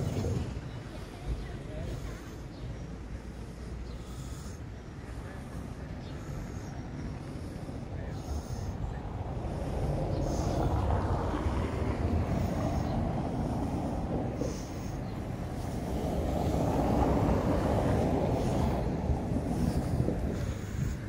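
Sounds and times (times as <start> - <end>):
city road traffic rumble: 0.0 - 21.0.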